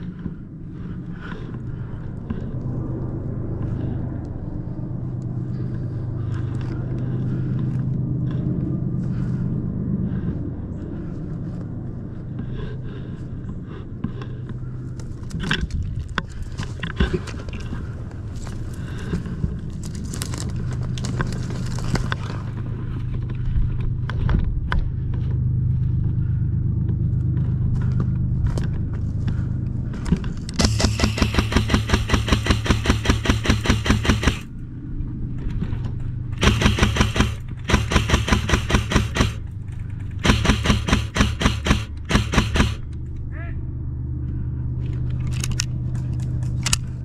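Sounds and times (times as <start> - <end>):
steady low rumble: 0.0 - 47.0
scattered clicks: 30.0 - 34.6, 35.3 - 43.3, 44.8 - 47.0
airsoft gun firing full-auto: 30.6 - 34.5, 36.4 - 39.6, 40.2 - 42.9.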